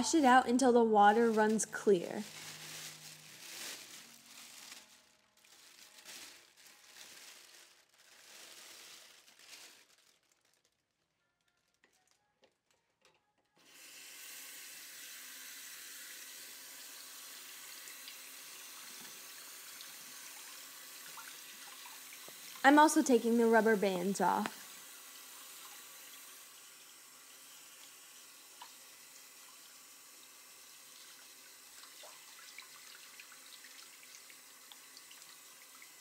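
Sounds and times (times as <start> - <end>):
faucet water running: 0.0 - 4.6, 13.6 - 36.0
plastic bag rustling: 1.0 - 12.3.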